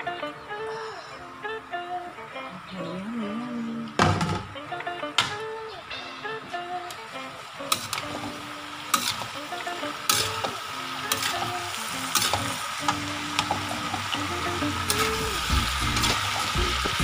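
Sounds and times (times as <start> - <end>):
food sizzling in a wok: 5.3 - 17.0
metal spatula scraping a pan: 7.7 - 9.4, 10.1 - 10.5, 11.1 - 14.0.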